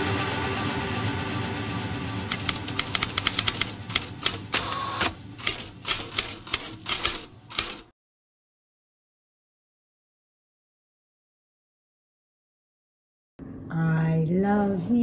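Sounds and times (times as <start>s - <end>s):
music: 0.0s - 4.4s
typewriter keys clacking: 2.3s - 4.8s, 5.4s - 7.9s.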